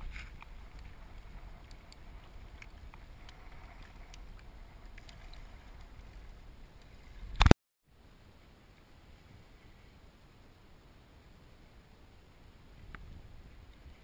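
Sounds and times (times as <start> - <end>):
faint drips and splashes: 0.0 - 7.2
wind rumble on microphone: 0.0 - 7.5, 12.5 - 14.0.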